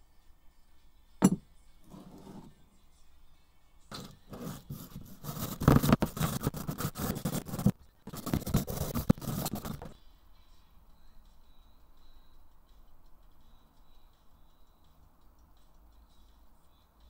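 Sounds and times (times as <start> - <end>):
metal clamp knocking on wood: 1.2 - 1.4
wire brush scraping metal: 3.9 - 9.9.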